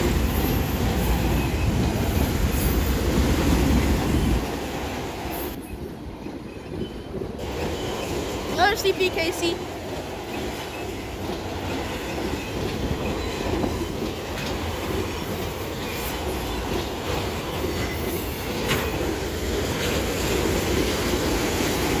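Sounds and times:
train wheels rumbling on rails: 0.0 - 22.0
wheels clicking over rail joints: 5.2 - 22.0.

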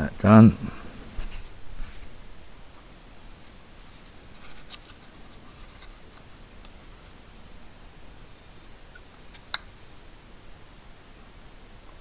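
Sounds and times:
faint scratching: 3.1 - 6.2, 6.8 - 8.0.

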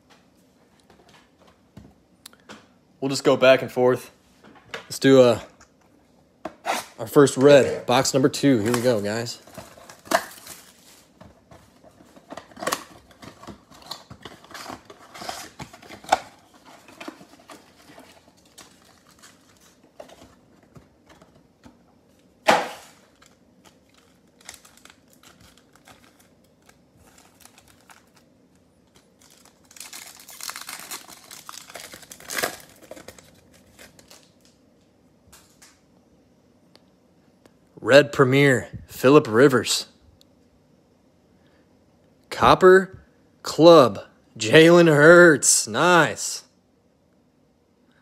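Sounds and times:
foil packs crinkling: 8.0 - 21.3, 22.6 - 34.6.

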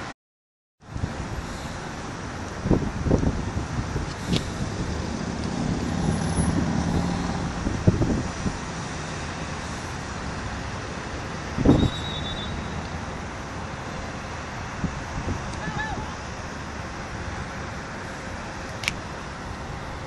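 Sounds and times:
distant road traffic: 0.8 - 20.0
low engine hum: 0.9 - 15.4.

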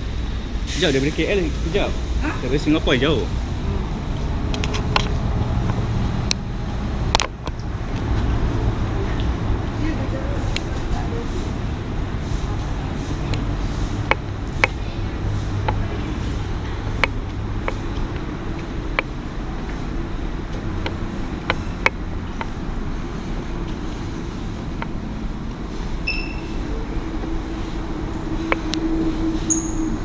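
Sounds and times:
car engine and road rumble: 0.0 - 30.0
short beep: 26.0 - 26.6, 29.5 - 30.0.

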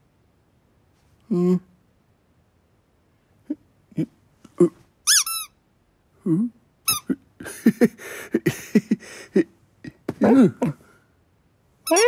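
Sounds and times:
low falling vocal sound: 1.2 - 1.8, 6.2 - 7.2
cartoon animal squeaks: 5.0 - 5.6, 6.9 - 7.2
man giggling: 6.3 - 10.8.

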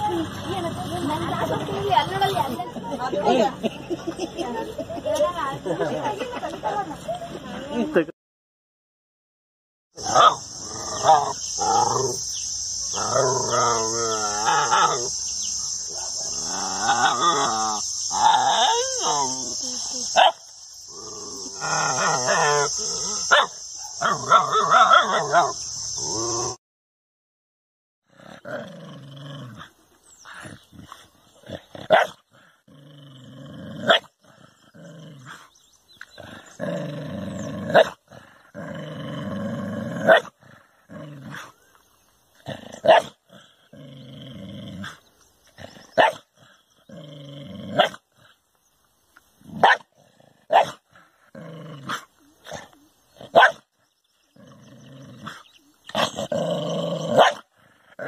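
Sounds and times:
dog barking: 10.0 - 10.4, 20.2 - 20.4, 23.2 - 25.6, 31.9 - 32.2, 40.1 - 40.3, 42.8 - 43.1, 46.0 - 46.2, 49.6 - 49.9, 50.5 - 50.8, 53.3 - 53.6, 57.2 - 57.4
dog growling: 10.0 - 12.2, 12.9 - 15.1, 15.9 - 19.8, 20.9 - 26.6, 28.1 - 41.7, 42.4 - 48.4, 49.4 - 53.5, 54.2 - 58.0.

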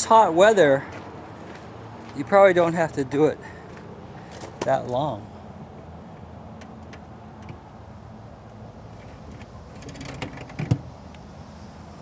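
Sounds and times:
wire racks clicking and rattling: 9.0 - 10.9.

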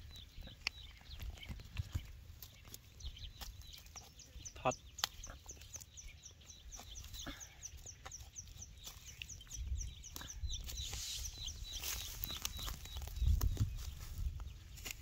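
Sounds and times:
bird chirping: 0.0 - 15.0
stick scraping in dry soil: 8.0 - 15.0.

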